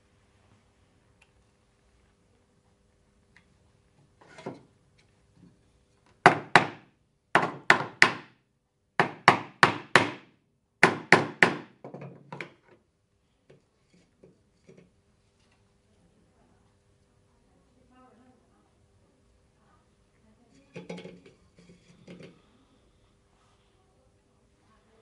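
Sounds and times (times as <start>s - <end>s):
hammer knocking wood: 6.2s - 6.8s, 7.4s - 8.3s, 9.0s - 12.1s.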